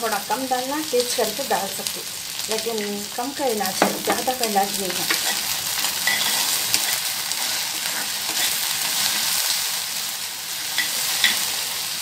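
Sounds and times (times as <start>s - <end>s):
vegetables sizzling in oil: 0.0s - 12.0s
metal spatula scraping pan: 5.0s - 9.5s, 10.6s - 11.5s.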